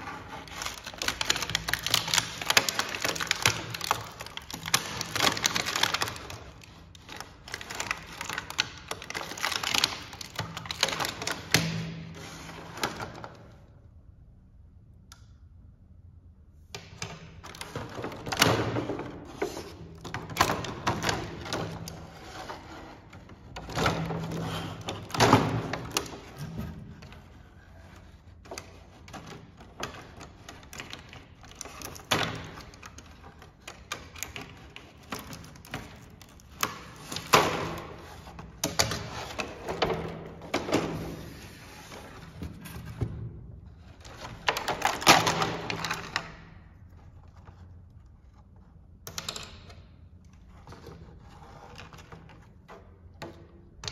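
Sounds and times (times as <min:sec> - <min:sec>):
plastic packaging crinkling: 0:00.0 - 0:11.7.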